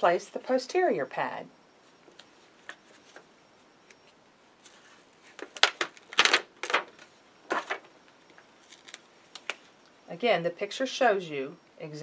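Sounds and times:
plastic liner crinkling: 4.6 - 9.7.

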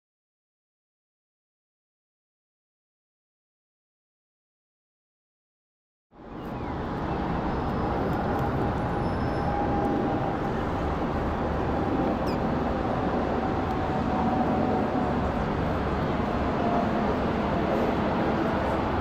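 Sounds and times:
faint jet whine: 6.2 - 19.0
jet plane roar overhead: 6.2 - 19.0.

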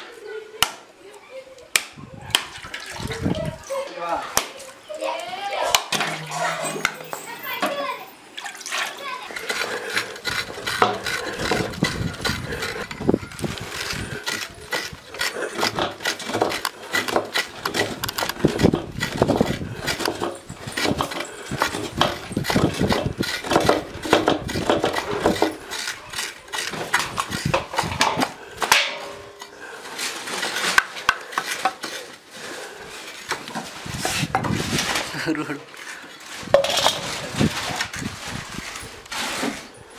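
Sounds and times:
coconut scraping on toothed blade: 9.2 - 28.1.

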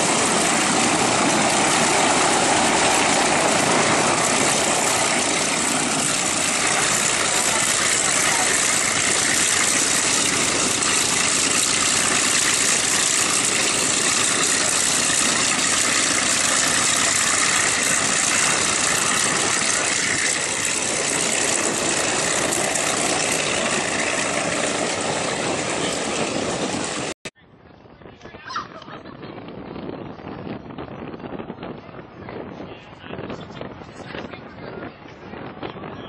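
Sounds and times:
piston aircraft engines running: 0.0 - 27.3.

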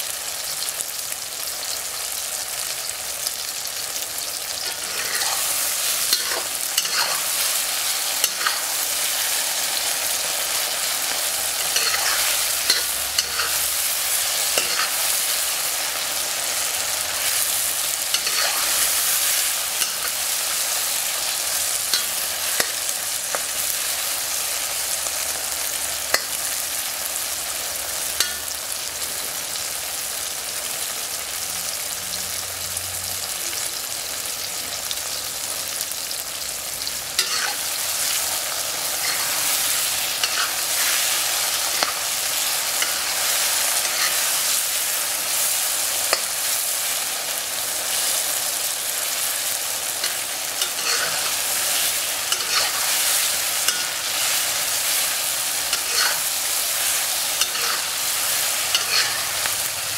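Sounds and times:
food sizzling in a wok: 0.0 - 59.9
metal spatula scraping pan: 4.5 - 20.7, 37.2 - 44.6, 50.0 - 59.6.

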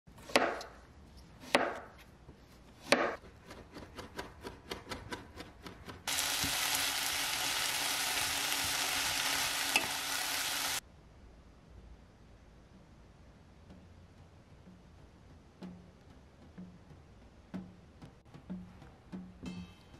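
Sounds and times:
knife chopping on wooden board: 0.2 - 0.8, 1.4 - 2.0, 2.8 - 6.0
vegetables sizzling in frying pan: 6.1 - 10.8.

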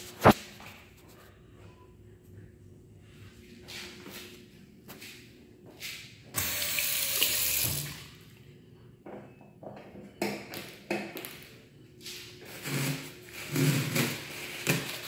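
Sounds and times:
faucet running into sink: 6.4 - 8.0.

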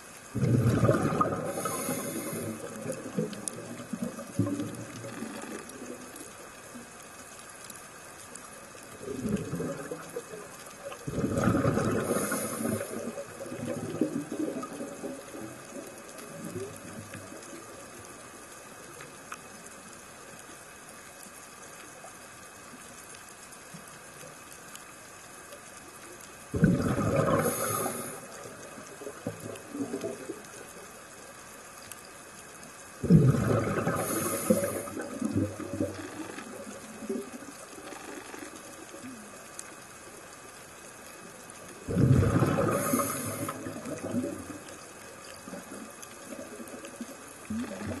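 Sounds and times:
steady water noise: 0.0 - 48.0
exhaled breath bubbling underwater: 0.3 - 6.0, 9.0 - 10.4, 11.0 - 17.0, 26.5 - 30.4, 33.0 - 37.3, 41.9 - 44.7, 47.5 - 48.0.

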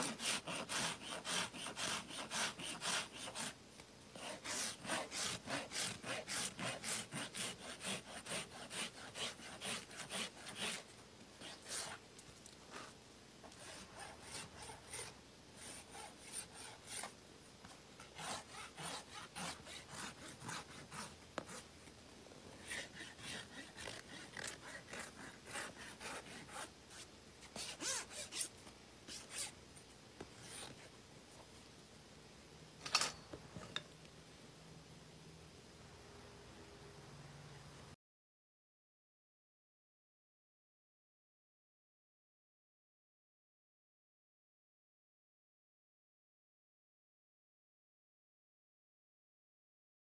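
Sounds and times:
hand tools rasping hoof: 0.0 - 3.5, 4.2 - 10.8.

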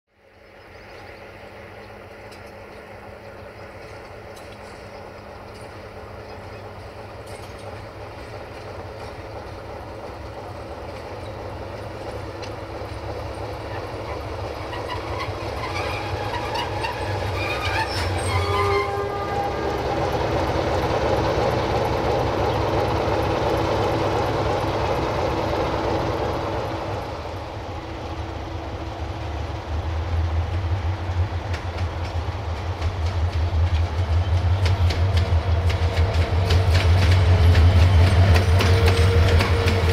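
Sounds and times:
diesel locomotive engine: 0.1 - 39.9
wheels clattering over rail joints: 3.7 - 19.2.

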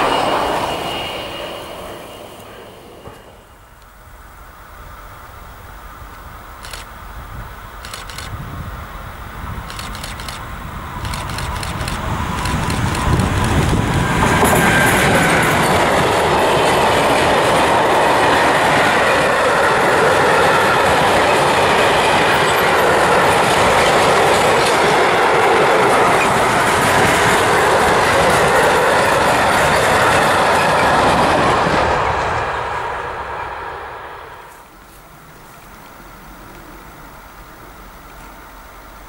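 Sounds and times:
locomotive passing: 0.0 - 39.0
freight wagons rolling on rails: 9.6 - 33.6.

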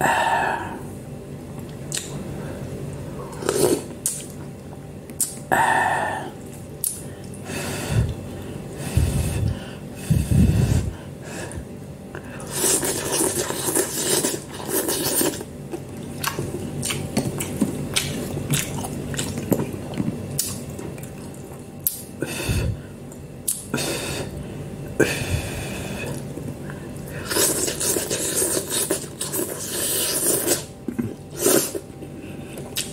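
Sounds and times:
slurping and chewing noodles: 3.3 - 4.3, 12.2 - 22.8, 25.1 - 32.9.

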